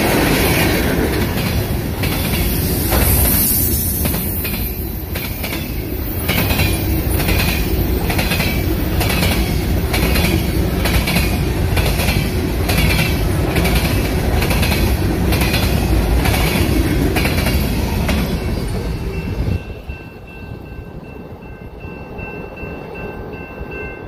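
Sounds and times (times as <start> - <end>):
train wheels clickety-clack: 0.0 - 19.9
train wheels rumbling on rail: 0.0 - 24.0.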